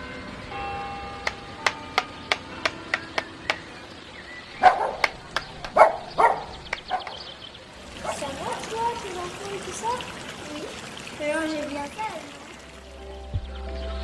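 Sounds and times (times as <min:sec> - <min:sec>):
evenly spaced sharp ticks: 0:01.2 - 0:03.6
dog barking: 0:04.6 - 0:05.1, 0:05.7 - 0:07.2, 0:08.0 - 0:08.8.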